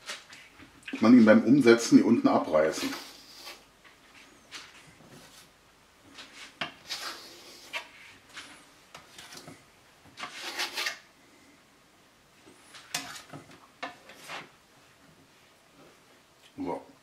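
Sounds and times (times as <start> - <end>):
knife scraping wooden board: 2.7 - 3.6, 6.2 - 8.2, 10.2 - 11.0, 12.8 - 14.5.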